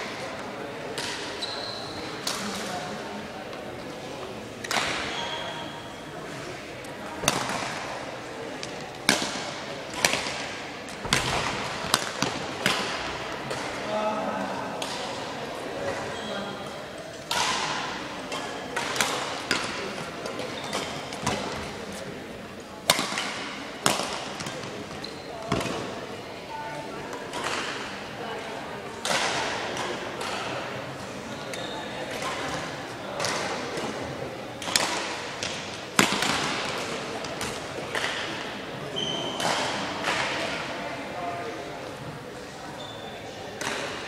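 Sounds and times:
shoe squeak: 1.4s - 2.1s, 5.0s - 6.1s, 16.1s - 16.5s, 25.0s - 25.4s, 31.3s - 32.0s, 39.0s - 39.4s, 42.7s - 43.2s
racket hitting shuttlecock: 7.2s - 8.0s, 8.6s - 13.9s, 17.3s - 21.5s, 22.8s - 24.9s, 29.0s - 30.6s, 34.6s - 38.5s, 39.3s - 40.6s, 43.6s - 44.0s
rackets striking shuttlecock: 7.2s - 8.0s, 8.6s - 13.9s, 43.6s - 44.0s.

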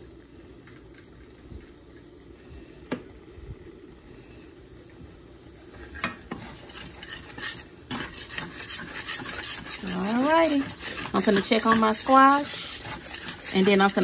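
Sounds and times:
eggs sizzling in grease: 3.7s - 14.0s
utensil stirring and scraping pot: 5.6s - 14.0s
utensil clicking against pot: 6.0s - 14.0s.

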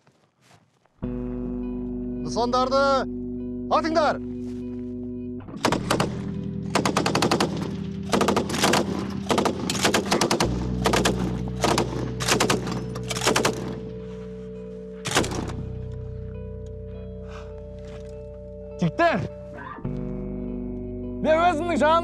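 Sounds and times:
machine gun bursts: 5.6s - 13.7s.

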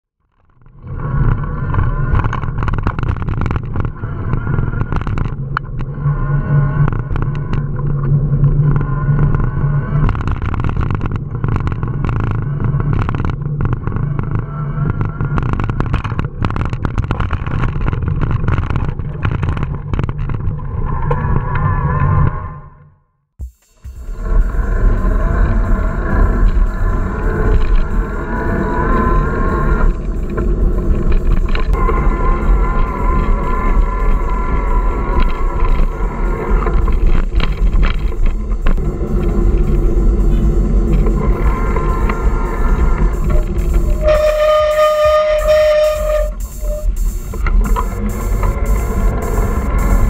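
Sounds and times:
road rumble: 23.6s - 50.0s
wind rush: 23.8s - 50.0s.

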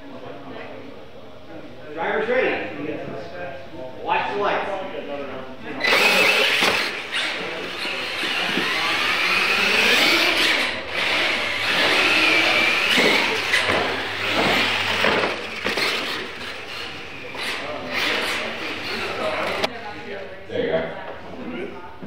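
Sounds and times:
electric motors whining: 5.8s - 19.7s.

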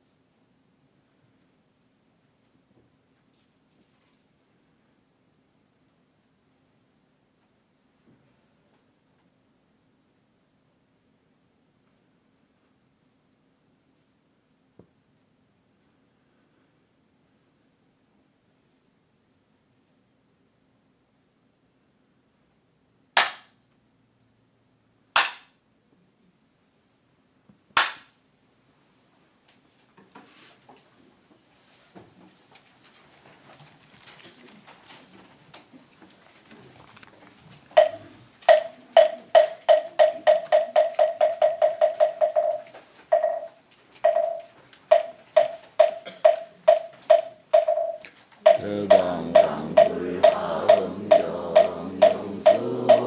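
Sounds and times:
bamboo clapper cracks: 25.2s - 25.5s, 27.8s - 28.1s
wooden fish hollow knocks: 37.8s - 43.4s.

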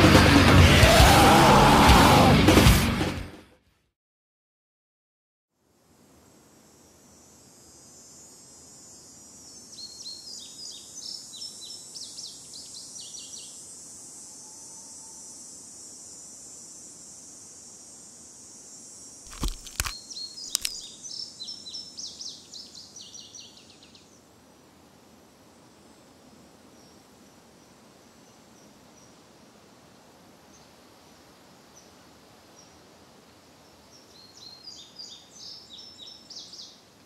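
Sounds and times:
high insect hiss: 5.6s - 37.0s
sharp clicks: 19.3s - 20.8s
bird chirping: 19.3s - 24.1s.

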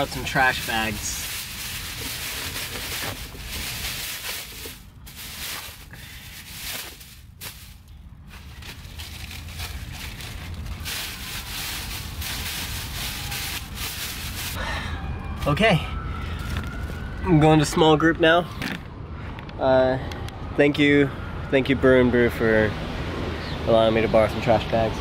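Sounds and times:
plastic bags rustling: 0.0s - 14.6s.

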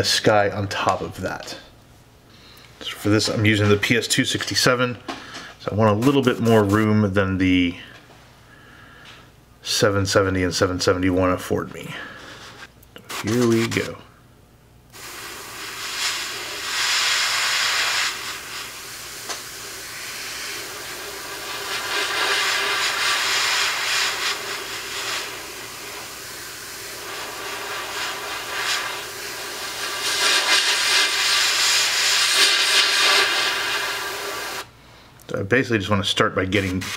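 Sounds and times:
steady low hum: 0.0s - 36.9s
airbrush spraying hiss: 15.0s - 34.7s.

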